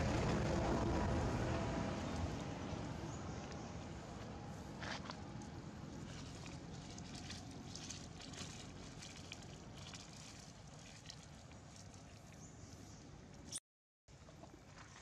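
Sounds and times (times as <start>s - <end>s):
low steady rumble: 0.0s - 13.5s
dry leaves crackling underfoot: 6.0s - 12.4s.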